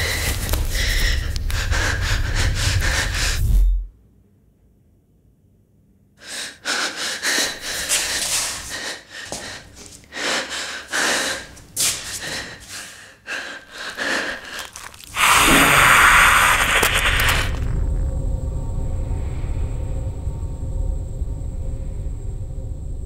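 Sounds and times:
woman breathing and gasping: 0.0s - 3.7s, 6.2s - 17.6s
loud noisy burst: 15.1s - 17.8s.

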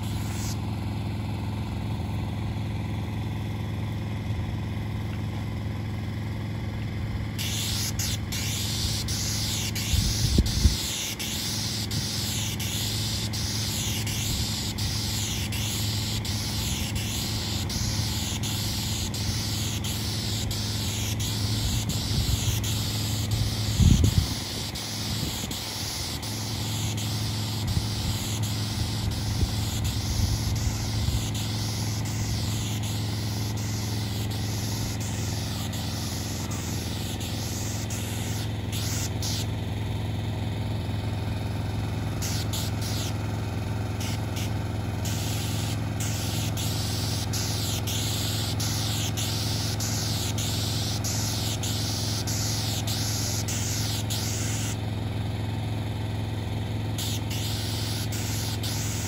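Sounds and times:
sealer spraying hiss: 0.0s - 0.6s, 7.4s - 39.5s, 42.1s - 43.2s, 43.9s - 54.8s, 57.0s - 59.0s
pump engine droning: 0.0s - 59.0s.

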